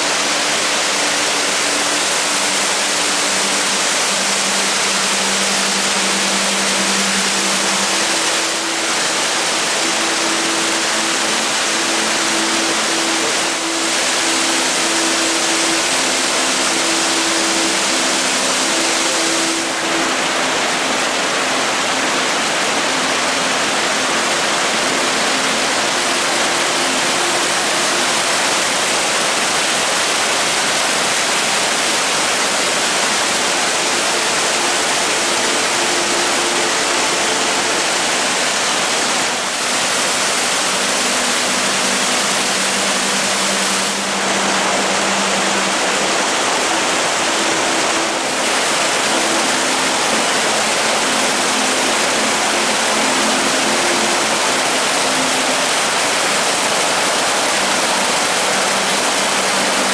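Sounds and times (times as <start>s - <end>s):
stream rushing over boulders: 0.0s - 59.9s.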